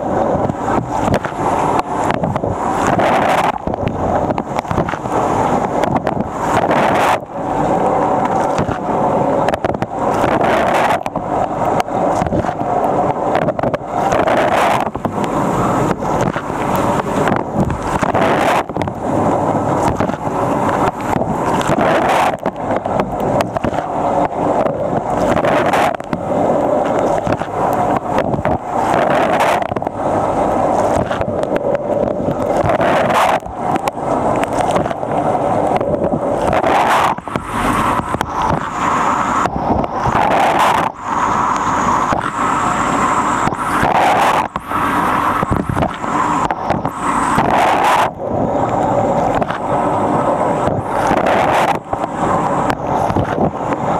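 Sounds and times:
water jets pelting camera: 0.0 - 53.9.

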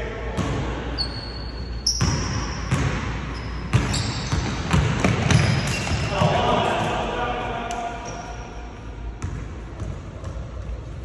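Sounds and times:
sneaker squeaks: 0.9 - 6.3, 8.0 - 8.5
basketball bouncing on wooden floor: 2.0 - 3.1, 3.7 - 6.1, 9.2 - 10.5.

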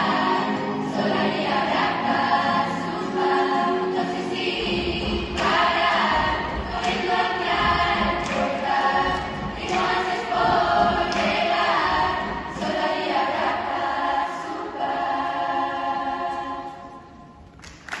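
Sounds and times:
girls' choir singing chords: 0.0 - 17.5.

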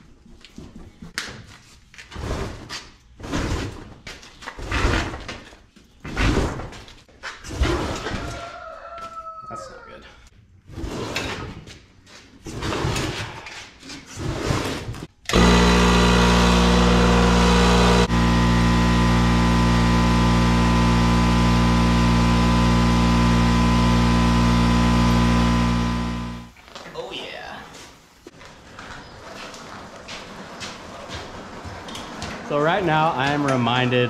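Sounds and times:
air compressor humming: 15.2 - 26.5
atv dragged across concrete: 28.4 - 34.0.

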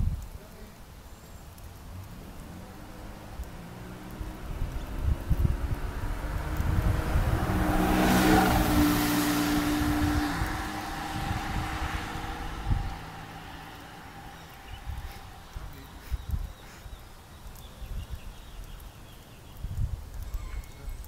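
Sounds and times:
car driving past: 1.8 - 16.6.

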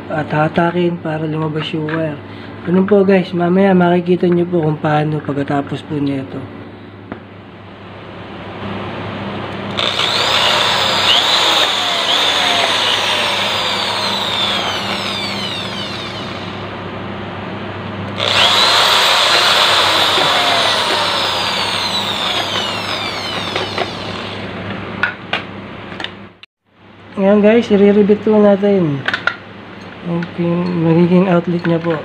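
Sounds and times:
electric drill boring into pipe: 9.7 - 16.6, 18.2 - 24.5.

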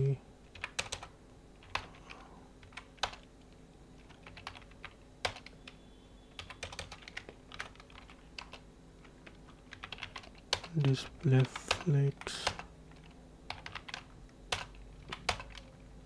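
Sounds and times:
computer keyboard typing: 0.4 - 3.3, 4.0 - 15.9.

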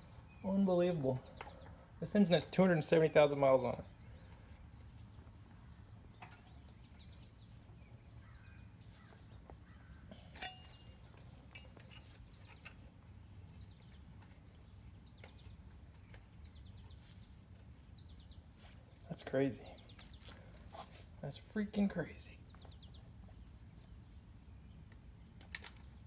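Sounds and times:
low steady hum: 0.0 - 26.0
sharp metal clink: 10.2 - 12.0.

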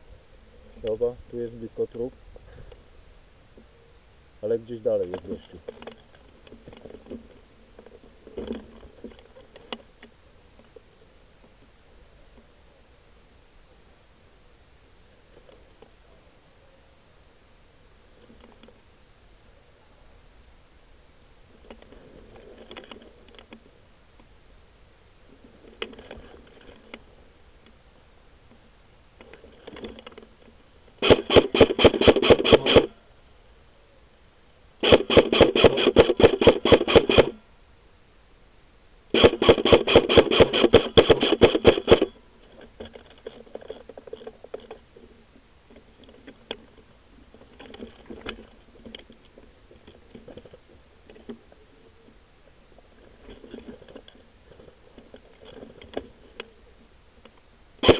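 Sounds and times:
faint rustling: 0.0 - 34.9, 41.8 - 57.9
airsoft gun full-auto bursts: 31.0 - 32.9, 34.8 - 37.4, 39.1 - 42.2.

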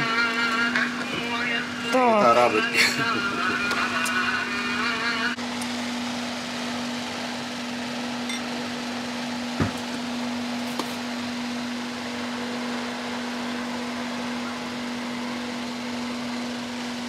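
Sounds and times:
machine hum with hiss: 0.0 - 17.0
blender jug knock: 9.6 - 9.8.

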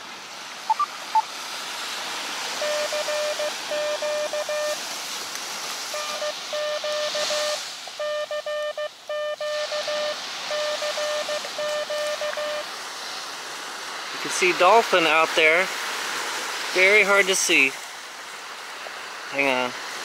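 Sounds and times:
ocean surf: 0.0 - 20.0
morse code beeps: 0.7 - 1.3, 2.6 - 4.8, 5.9 - 12.7.

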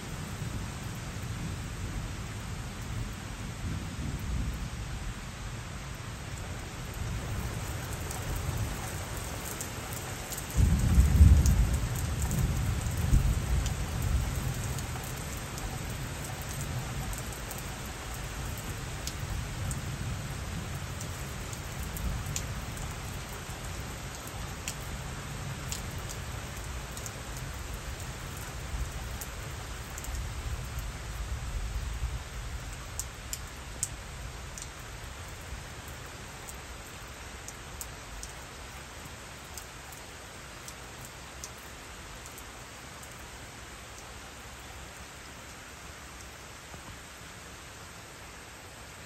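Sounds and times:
steady rain falling: 0.0 - 49.0
thunder rumbling: 10.5 - 14.8.

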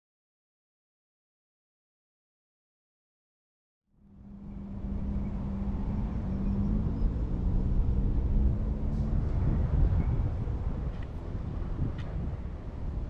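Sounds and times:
low engine hum: 4.0 - 13.0
rumbling outdoor noise: 4.0 - 13.0.

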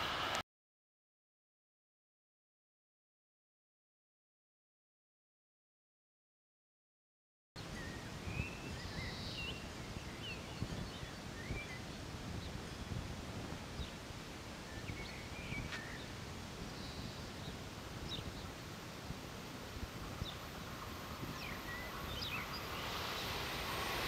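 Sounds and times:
birds chirping: 7.6 - 13.0, 14.6 - 18.6, 20.1 - 23.6
wind on microphone: 7.6 - 24.0.

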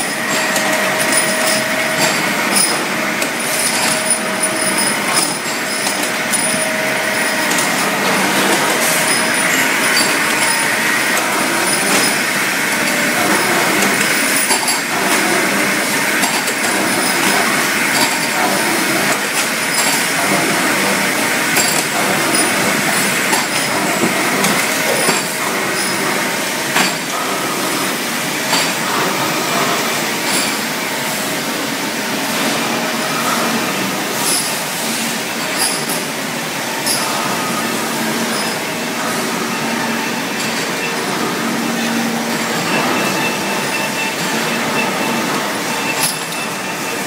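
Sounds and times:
metal clanks and clinks: 0.0 - 12.3
metalworking machinery din: 0.0 - 47.0.

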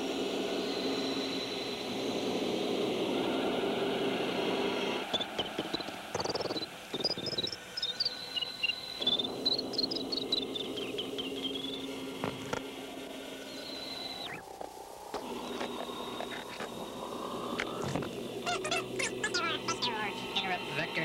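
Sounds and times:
low hum: 0.0 - 21.0
rapid high electronic bleeps: 5.1 - 8.0
steady high tone: 15.1 - 21.0.

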